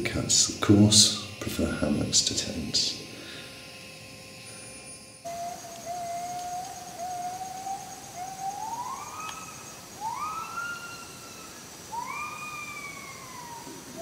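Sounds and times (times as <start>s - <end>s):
thin high-pitched drone: 0.0s - 14.0s
long pitched animal calls: 4.4s - 14.0s.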